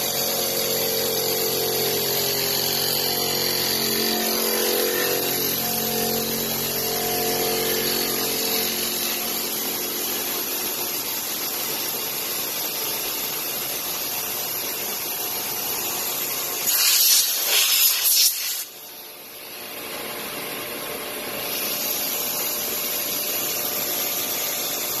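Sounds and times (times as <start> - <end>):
hissing spray bursts: 16.6 - 18.8
milling machine hiss: 16.6 - 18.8.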